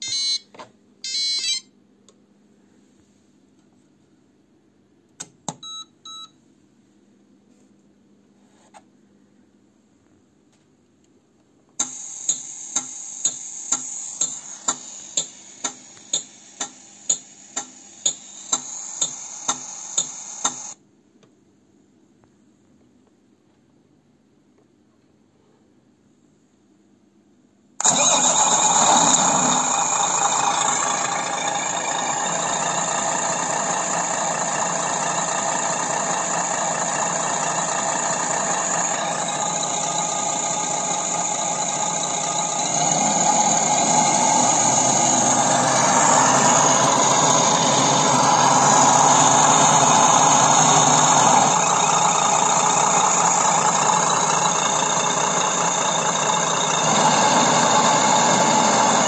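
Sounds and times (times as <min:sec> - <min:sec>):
simulated diesel engine: 0:11.8 - 0:20.8, 0:27.8 - 0:59.0.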